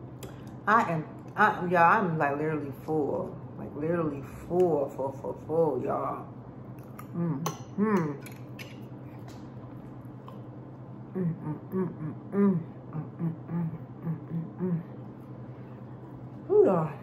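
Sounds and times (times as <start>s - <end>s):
woman humming while eating: 7.0s - 8.3s, 11.0s - 15.2s.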